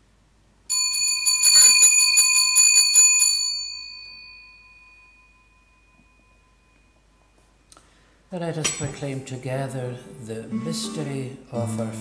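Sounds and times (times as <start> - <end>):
altar bell ringing: 0.7 - 7.6.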